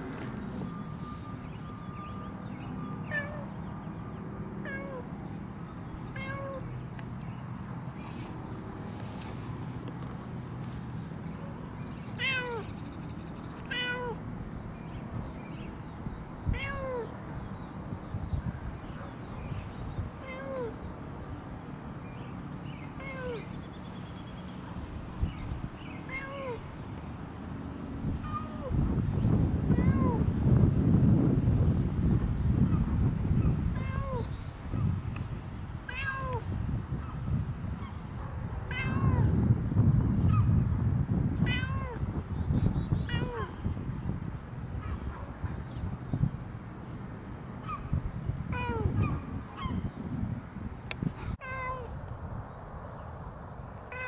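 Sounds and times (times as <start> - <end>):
cat meowing: 4.6 - 5.0, 6.2 - 6.6, 12.2 - 12.7, 13.7 - 14.2, 16.5 - 17.1, 35.9 - 36.4, 38.7 - 39.4, 41.4 - 42.0, 43.1 - 43.6, 48.5 - 49.2, 51.4 - 51.9.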